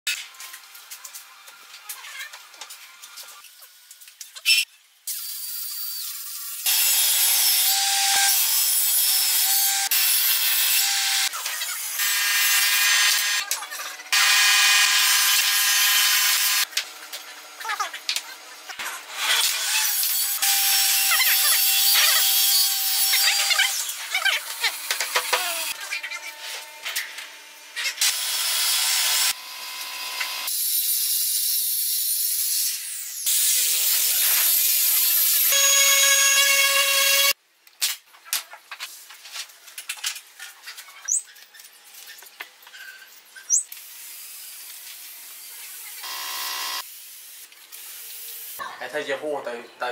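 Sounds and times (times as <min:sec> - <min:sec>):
table saw cutting wood: 0:05.2 - 0:16.7, 0:18.9 - 0:37.4, 0:45.2 - 0:46.9.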